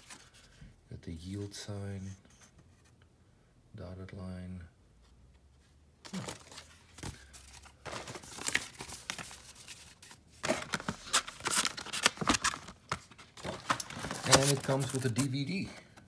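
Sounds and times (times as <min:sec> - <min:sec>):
plastic packaging crinkling: 0:06.1 - 0:15.6.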